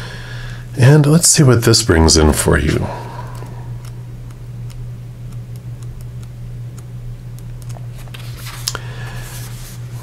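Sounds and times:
steady low hum: 0.0s - 10.0s
book pages flipping: 7.6s - 10.0s.

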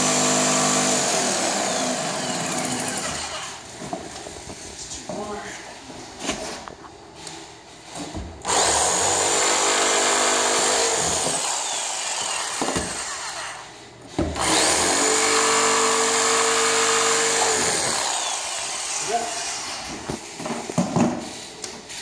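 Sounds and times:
jigsaw cutting plywood: 0.0s - 3.6s, 8.5s - 13.7s, 14.4s - 19.8s.

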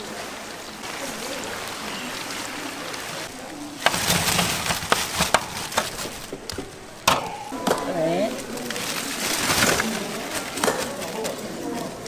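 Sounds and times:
sharp knocks and clatter: 3.8s - 9.9s.

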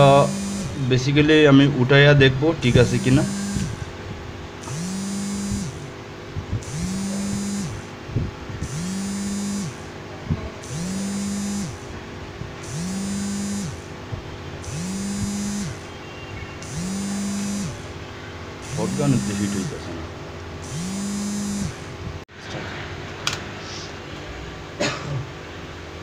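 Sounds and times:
hot-air gun blower whirring: 0.0s - 1.0s, 2.6s - 10.0s, 10.6s - 15.9s, 16.6s - 22.3s.

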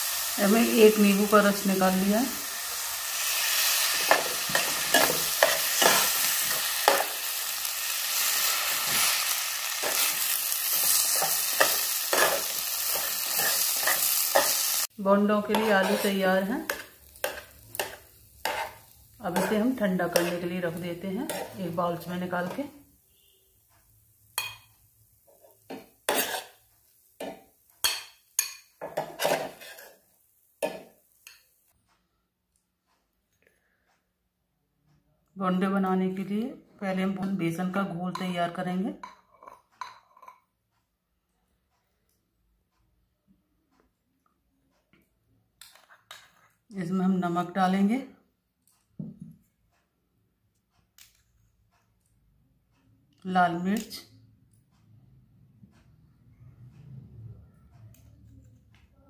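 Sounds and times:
food sizzling in a pan: 0.0s - 31.8s
metal spatula scraping a pan: 3.2s - 20.5s, 21.2s - 21.8s, 25.3s - 31.4s.

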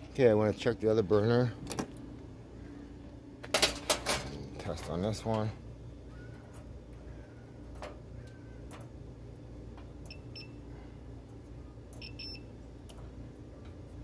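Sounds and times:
multimeter high beeps: 10.1s - 10.6s, 12.0s - 12.5s.

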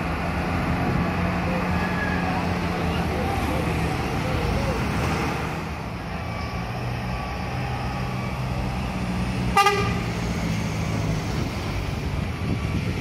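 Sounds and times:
bus diesel engine running: 0.0s - 13.0s
bus horn toot: 9.5s - 10.2s.

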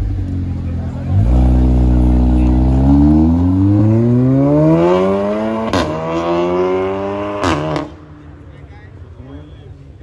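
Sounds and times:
car engine accelerating hard: 0.0s - 8.0s.

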